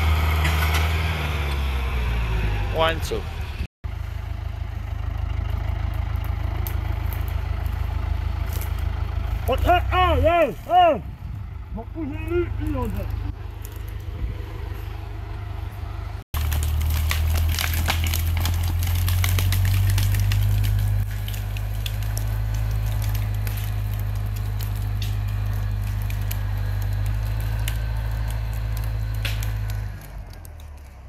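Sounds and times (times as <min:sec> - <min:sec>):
tractor diesel engine under load: 0:00.0 - 0:31.0
roots and branches snapping: 0:05.4 - 0:10.9, 0:12.0 - 0:14.2, 0:16.4 - 0:31.0.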